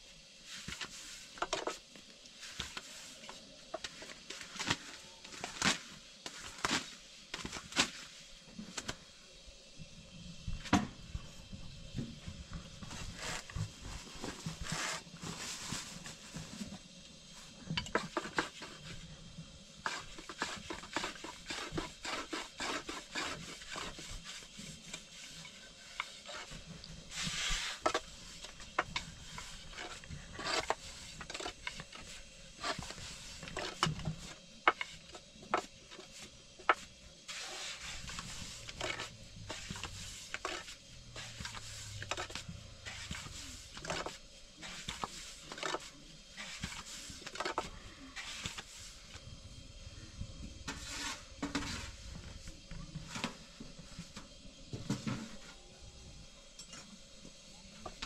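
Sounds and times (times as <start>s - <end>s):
rolling pin rubbing dough: 19.7s - 49.2s, 50.7s - 52.0s.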